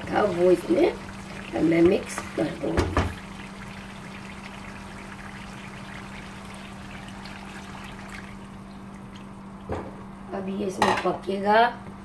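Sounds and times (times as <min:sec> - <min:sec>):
chicken sizzling in frying pan: 0:00.0 - 0:09.1.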